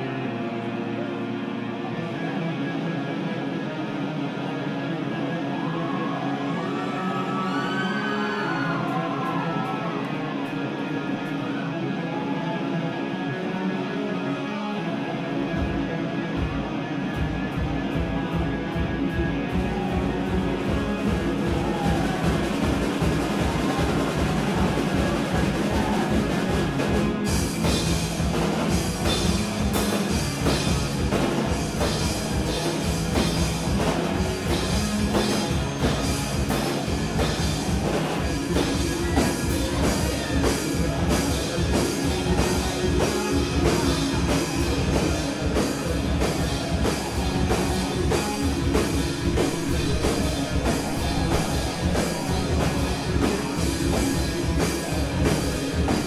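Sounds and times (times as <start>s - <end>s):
electric guitar: 0.0s - 56.0s
drum kit: 15.5s - 56.0s.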